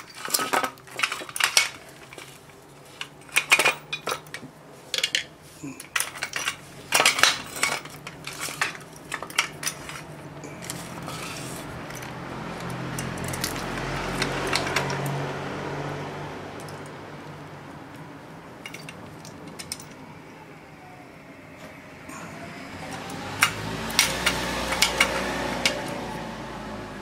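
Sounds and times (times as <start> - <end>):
metal clicks and clinks: 0.0 - 15.2, 16.6 - 17.0, 18.6 - 20.1, 22.8 - 26.0.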